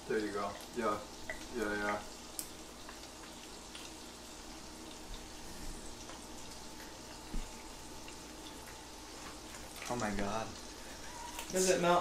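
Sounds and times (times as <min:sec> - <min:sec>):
sizzling in a skillet: 0:00.0 - 0:12.0.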